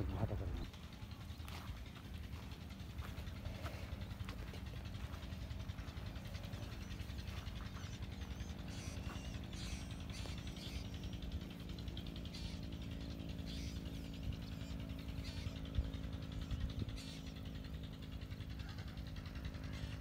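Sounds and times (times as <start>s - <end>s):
wind rumble on microphone: 0.0s - 0.7s
low mechanical hum: 0.0s - 20.0s
bird chirps: 4.8s - 18.9s.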